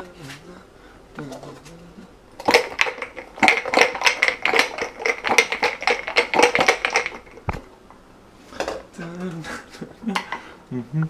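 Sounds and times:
drink shaken in plastic cup: 2.4s - 7.7s.

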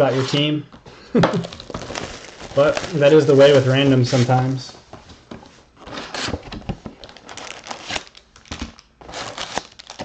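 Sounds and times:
plastic wrap crinkling: 1.3s - 4.7s, 5.5s - 10.0s.

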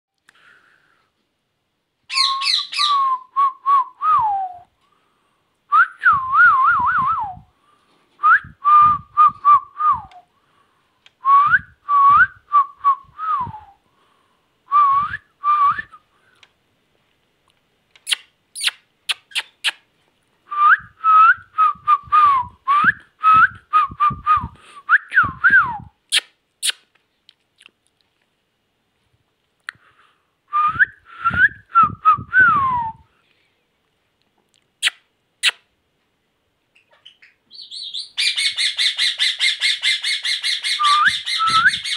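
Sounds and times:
parakeet whistling: 2.1s - 3.2s, 36.8s - 41.9s.

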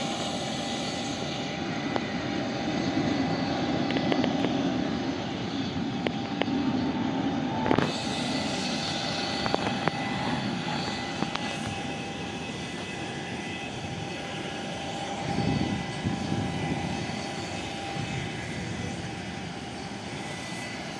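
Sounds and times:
jet engines running: 0.0s - 20.9s.

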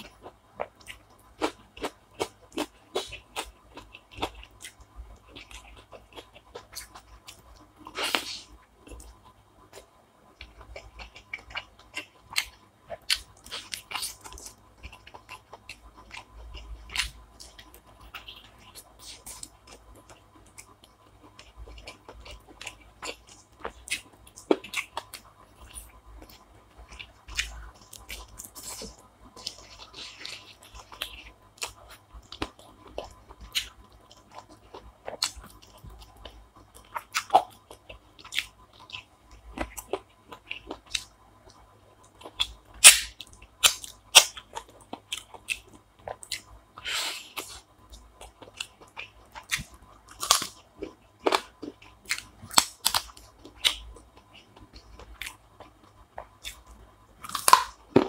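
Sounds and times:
person chewing and crunching food: 0.0s - 58.0s.

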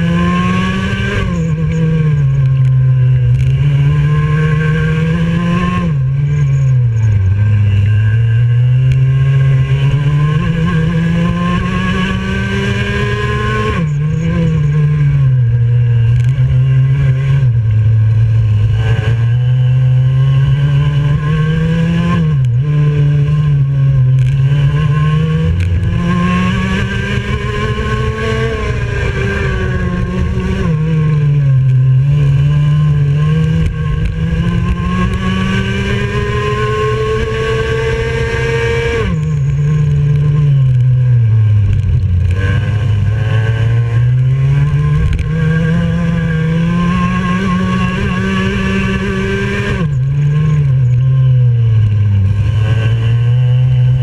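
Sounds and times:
kart engine driving hard: 0.0s - 54.0s.

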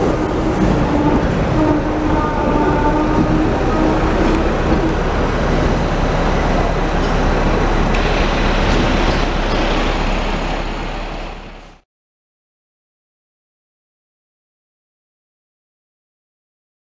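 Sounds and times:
street traffic: 0.0s - 11.8s
tram running: 0.0s - 11.8s.

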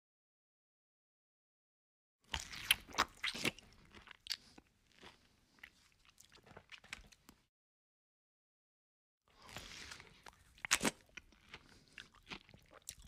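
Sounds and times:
chewing with wet crunches: 9.5s - 13.0s.

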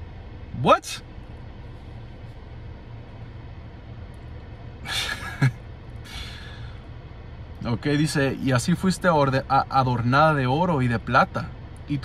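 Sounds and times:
car cabin hum: 0.0s - 12.0s
man breathing in sharply: 6.0s - 6.9s.

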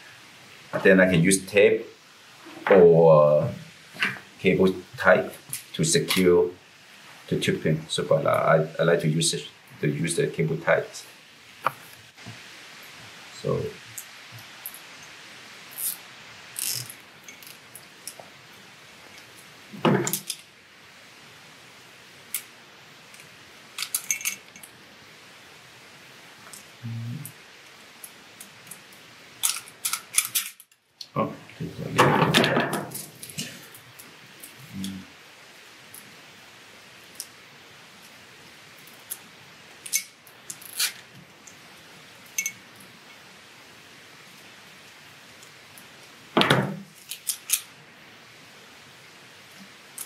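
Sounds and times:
cable tie clicks and rasps: 15.7s - 18.2s, 28.0s - 31.1s, 39.8s - 41.6s, 47.0s - 47.7s.

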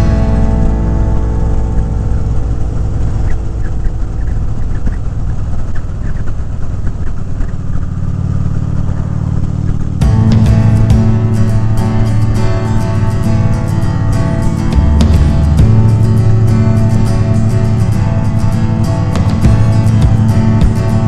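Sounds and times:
music: 0.0s - 5.4s, 10.0s - 21.0s
motorcycle engine running: 0.0s - 21.0s.

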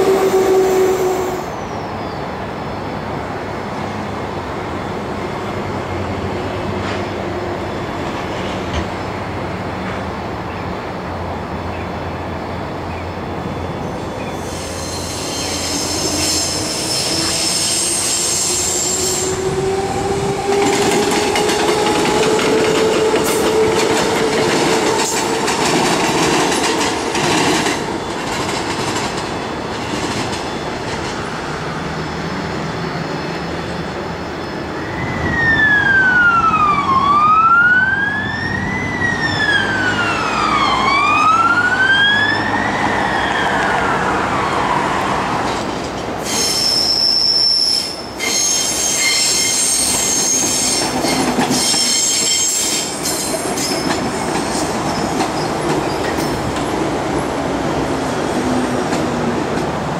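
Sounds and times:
train wheels squealing on rails: 0.0s - 2.8s, 12.4s - 36.5s, 38.2s - 56.8s
electric train running past: 0.0s - 59.9s
fire engine siren wailing: 34.9s - 45.5s.

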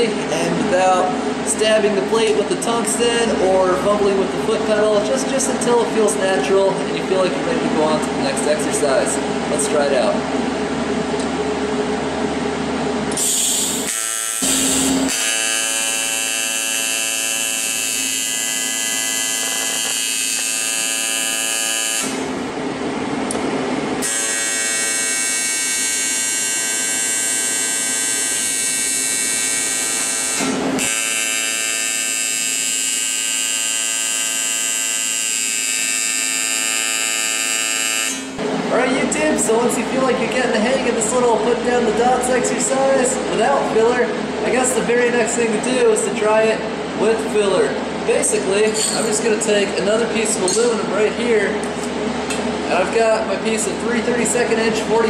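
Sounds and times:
welding arc buzzing: 13.1s - 22.6s, 24.0s - 38.6s.

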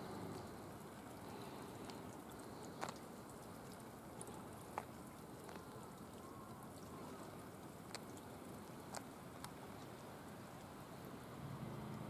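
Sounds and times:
faint ticks: 0.0s - 10.8s
faint steady hiss: 0.0s - 12.0s.

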